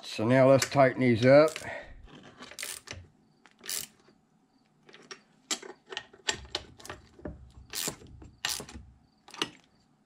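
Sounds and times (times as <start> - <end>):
hand ratchet clicking: 1.5 - 1.7, 2.6 - 3.0, 3.6 - 4.0, 7.7 - 9.5.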